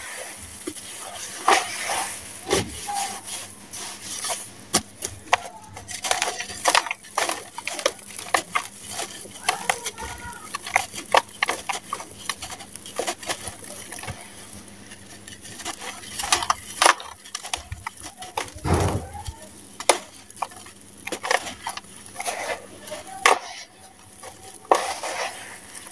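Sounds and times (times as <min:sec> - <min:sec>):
hands crumbling gritty sand mix: 0:00.0 - 0:25.9
heavy thump: 0:18.6 - 0:19.2.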